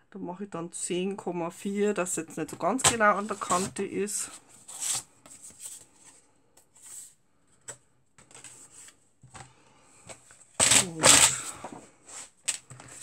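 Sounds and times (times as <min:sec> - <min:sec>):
paper scraping rustle: 0:02.9 - 0:06.2.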